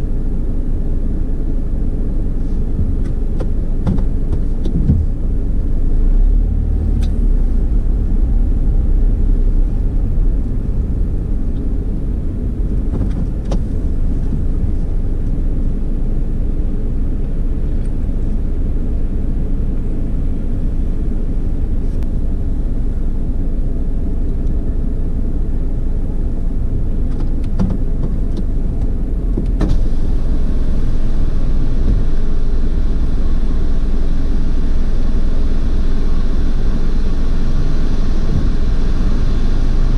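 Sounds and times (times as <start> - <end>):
car wash low rumble: 0.0 - 39.9
bright hiss: 29.8 - 39.9.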